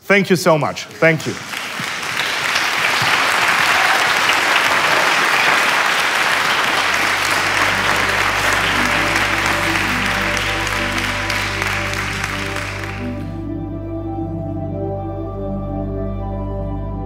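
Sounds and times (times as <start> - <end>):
applause: 0.8 - 13.4
music with bass and chords: 7.4 - 17.0.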